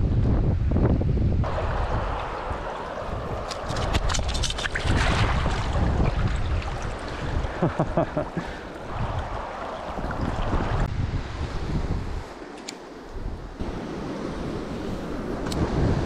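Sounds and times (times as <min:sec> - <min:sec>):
wind on microphone: 0:00.0 - 0:12.4, 0:13.0 - 0:16.0
water gurgles: 0:01.4 - 0:10.9
river running over rocks: 0:01.5 - 0:10.9
short splashes and clicks: 0:01.5 - 0:10.9.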